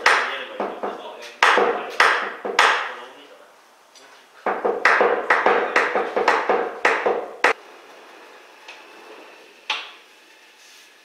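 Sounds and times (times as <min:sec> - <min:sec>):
tool knocking on metal: 0:00.0 - 0:02.9, 0:04.4 - 0:07.6.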